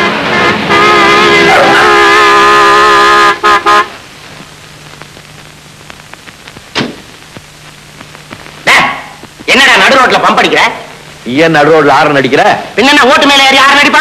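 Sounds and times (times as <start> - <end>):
car horn: 0.0 - 4.0.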